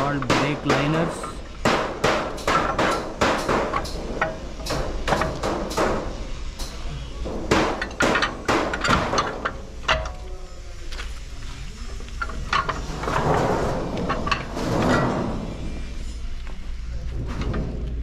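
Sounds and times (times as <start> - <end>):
hammer striking steel: 0.0 - 10.1.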